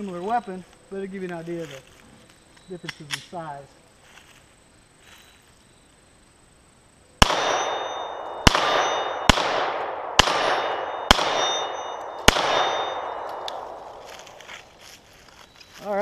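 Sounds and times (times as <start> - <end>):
pistol shots ringing: 7.2 - 14.2.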